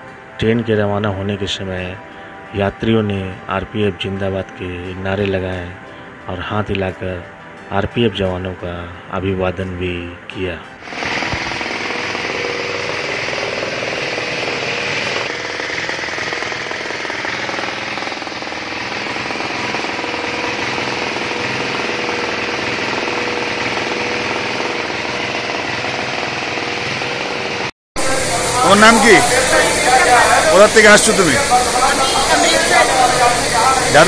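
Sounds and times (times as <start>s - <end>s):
sprayer pump chattering: 10.8s - 34.0s
spray hissing: 28.0s - 34.0s.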